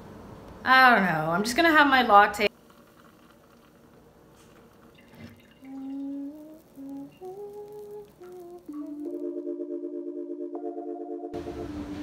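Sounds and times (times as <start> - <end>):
person humming a tune: 5.6 - 10.4
music chords: 6.9 - 12.0.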